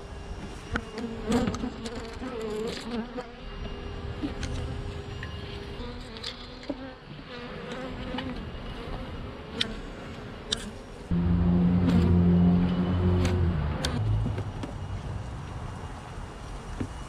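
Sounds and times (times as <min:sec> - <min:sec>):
honeybees buzzing: 0:00.3 - 0:15.6
loud low hum: 0:11.1 - 0:16.5.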